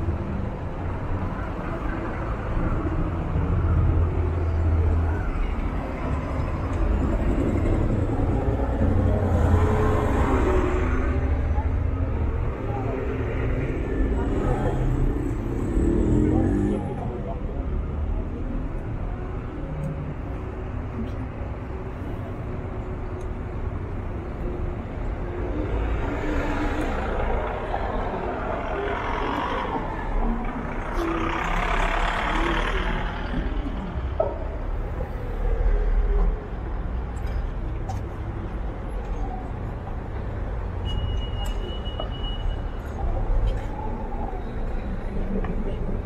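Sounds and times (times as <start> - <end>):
faint voices of passers-by: 0.0 - 46.0
road traffic rumble: 0.0 - 46.0.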